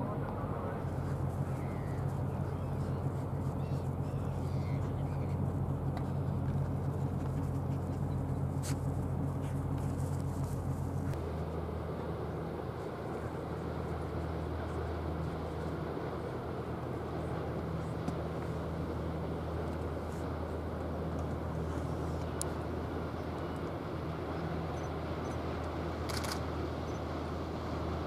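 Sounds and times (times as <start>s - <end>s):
low ship engine hum: 0.0s - 28.0s
faint bird calls: 0.9s - 5.5s.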